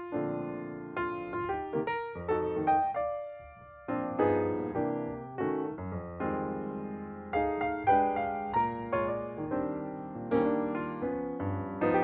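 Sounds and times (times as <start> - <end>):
gentle piano chords: 0.0 - 12.0.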